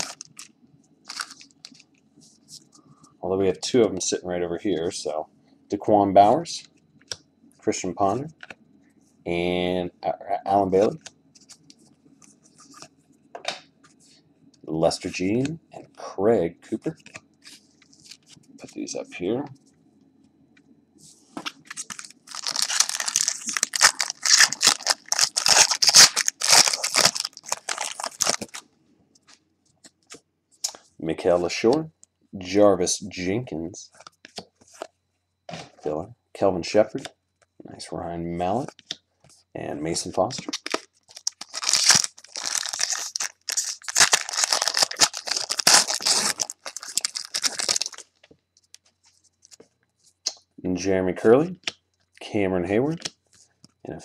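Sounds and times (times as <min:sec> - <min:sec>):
foil wrapper crinkling and tearing: 0:00.0 - 0:00.5, 0:01.1 - 0:01.8, 0:21.7 - 0:28.6, 0:40.4 - 0:48.2.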